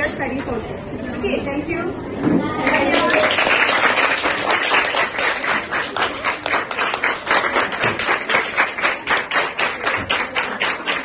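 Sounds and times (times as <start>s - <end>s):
people clapping in rhythm: 2.6s - 11.0s.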